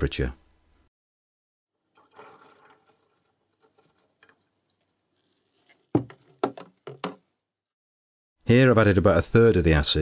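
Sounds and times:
liquid pattering into water: 0:01.8 - 0:06.4.

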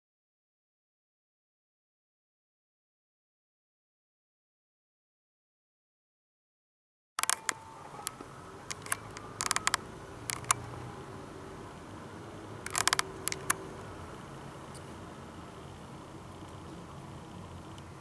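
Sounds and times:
sharp clicks and knocks: 0:07.2 - 0:10.7, 0:12.6 - 0:13.6
low hum inside moving car: 0:07.2 - 0:18.0.

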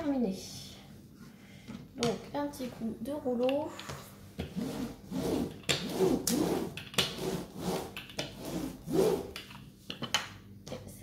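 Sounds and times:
roller rasping over canvas: 0:04.5 - 0:09.4.

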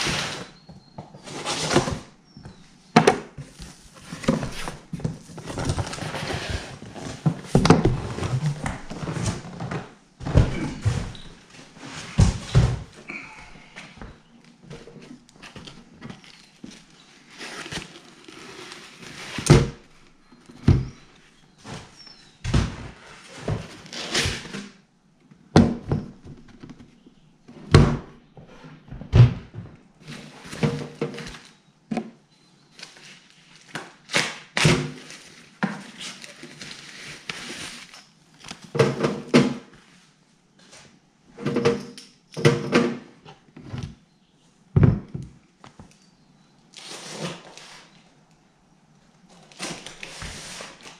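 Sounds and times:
foam and paper rustling: 0:32.7 - 0:38.7.

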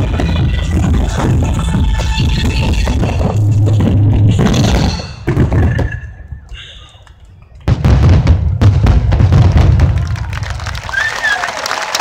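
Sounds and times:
fireworks bangs: 0:07.6 - 0:11.3.

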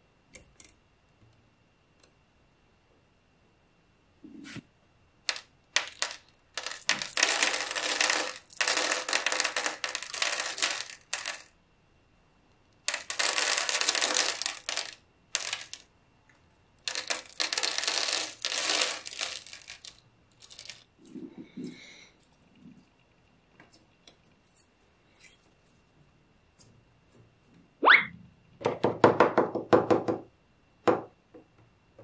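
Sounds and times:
magnetic balls clicking together: 0:05.2 - 0:11.5, 0:12.8 - 0:15.9, 0:16.8 - 0:21.2.

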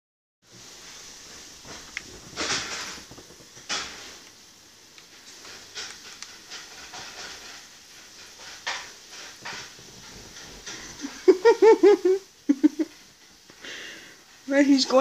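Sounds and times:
breathy hissing: 0:00.5 - 0:14.5
faint rustling: 0:00.5 - 0:15.0
person's voice: 0:14.5 - 0:15.0.

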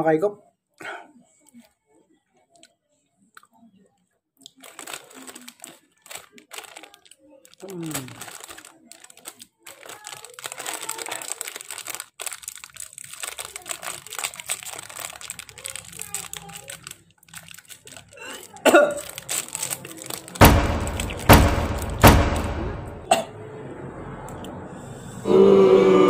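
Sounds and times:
plastic wrapper crinkling: 0:04.4 - 0:22.0
loud short sounds: 0:20.4 - 0:23.2.

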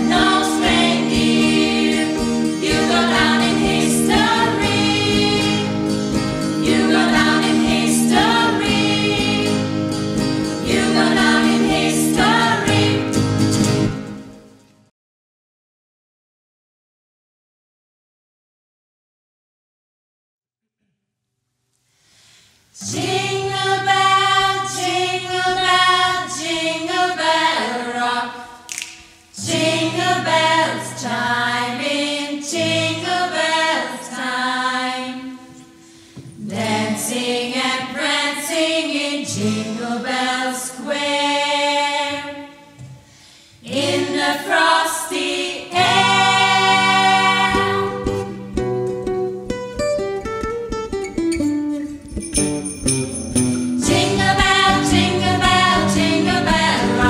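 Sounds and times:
choir singing a cappella: 0:00.0 - 0:13.5, 0:22.8 - 0:28.7, 0:29.3 - 0:42.9, 0:43.6 - 0:48.5, 0:53.8 - 0:57.0.

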